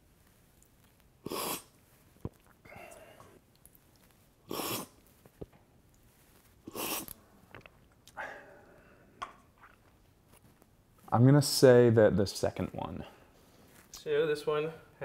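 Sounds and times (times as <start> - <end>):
soft breathing: 1.7 - 3.5, 6.1 - 9.3, 13.0 - 13.9.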